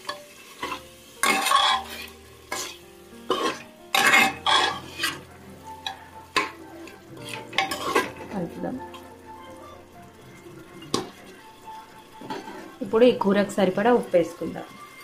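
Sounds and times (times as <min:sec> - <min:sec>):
meat sizzling in oil: 0:00.0 - 0:15.0
spoon scraping a metal pot: 0:00.6 - 0:05.2, 0:07.2 - 0:08.2.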